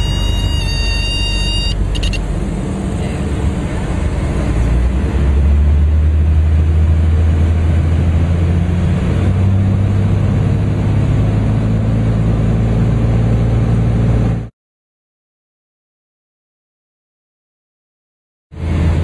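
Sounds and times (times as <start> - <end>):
aircraft engine and propeller: 0.0 - 14.5, 18.6 - 19.0.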